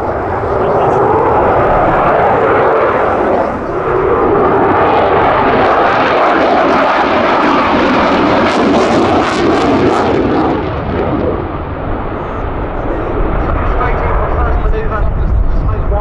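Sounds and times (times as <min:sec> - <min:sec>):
jet engine in afterburner: 0:00.0 - 0:16.0.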